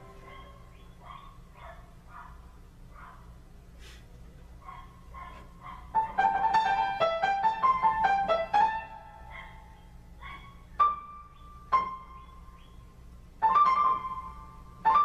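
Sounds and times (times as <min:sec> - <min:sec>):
piano playing: 0:00.0 - 0:00.8, 0:05.9 - 0:09.3, 0:10.8 - 0:12.5, 0:13.3 - 0:15.0.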